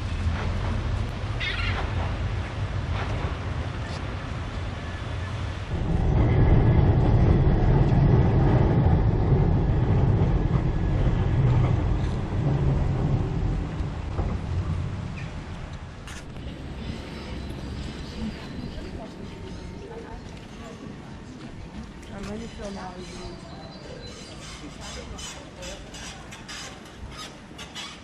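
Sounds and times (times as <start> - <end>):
wind buffeting microphone: 0.0 - 27.6
tram rumbling on rails: 0.0 - 28.0.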